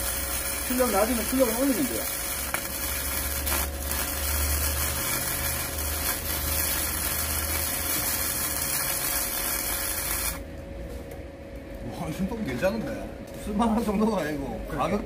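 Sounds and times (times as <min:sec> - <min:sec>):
welding arc crackle and hiss: 0:00.0 - 0:10.5
low welder hum: 0:00.0 - 0:15.0.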